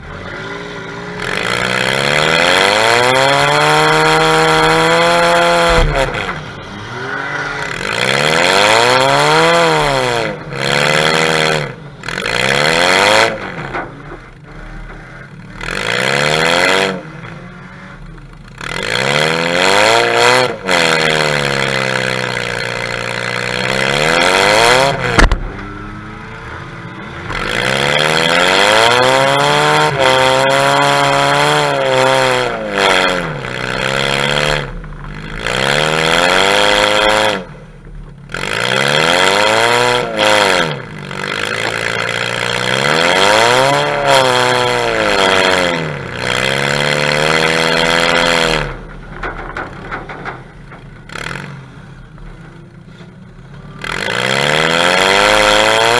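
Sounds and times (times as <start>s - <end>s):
car engine revving: 0.0s - 55.9s
car crash impact: 5.6s - 6.6s, 25.1s - 25.7s, 48.7s - 53.6s.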